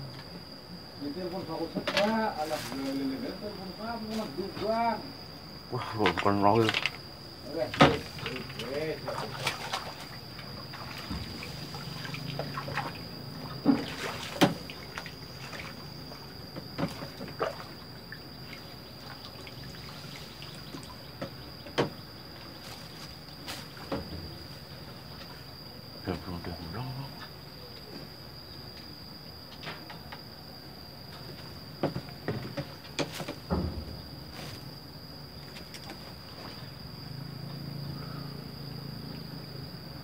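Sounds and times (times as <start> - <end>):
high insect drone: 0.0 - 40.0
water splashes and trickles: 6.0 - 24.2.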